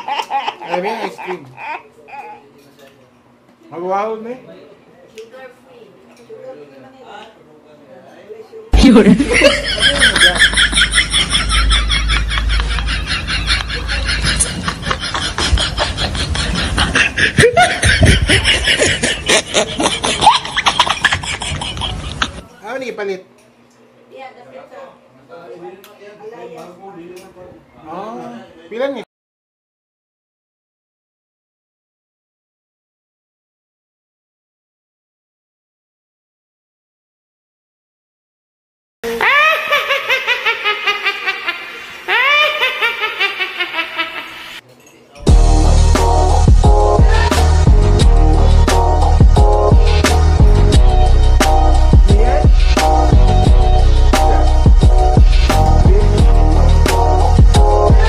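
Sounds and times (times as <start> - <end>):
people laughing and chatting: 8.7 - 22.9, 45.2 - 58.0
high-pitched laughter: 8.8 - 22.5, 39.1 - 44.6.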